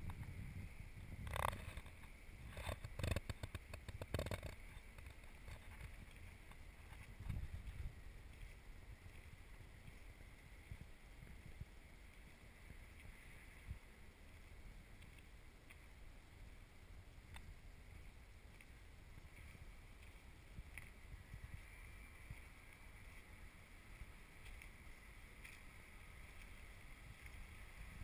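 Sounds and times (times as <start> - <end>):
wind rumble on microphone: 0.0 - 28.0
faint clicks: 1.2 - 10.4.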